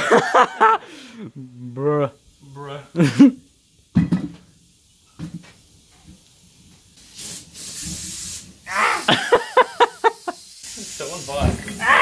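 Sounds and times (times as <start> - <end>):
aerosol can spray hissing: 6.7 - 12.0.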